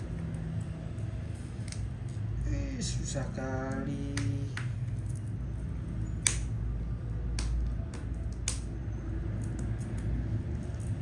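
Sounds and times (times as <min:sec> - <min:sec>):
packaging clicks and taps: 0:07.2 - 0:08.8.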